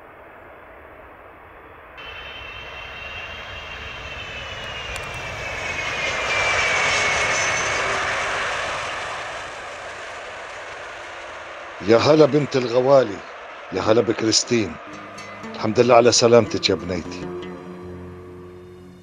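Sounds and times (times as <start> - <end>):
jet engines whining: 0.0 - 19.0.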